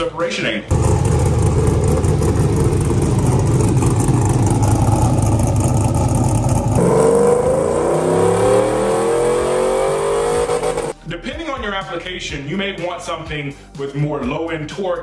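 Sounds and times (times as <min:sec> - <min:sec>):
engine choppy idle: 0:00.7 - 0:06.8
engine pulling under load: 0:00.7 - 0:11.0.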